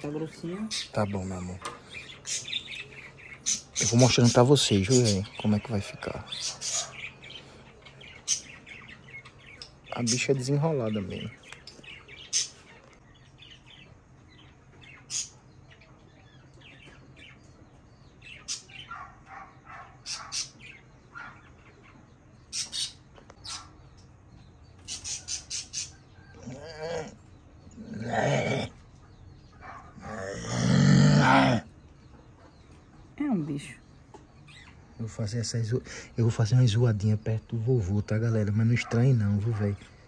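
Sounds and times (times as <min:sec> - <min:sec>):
birds chirping: 0:00.0 - 0:40.0
chickens clucking: 0:14.0 - 0:27.8.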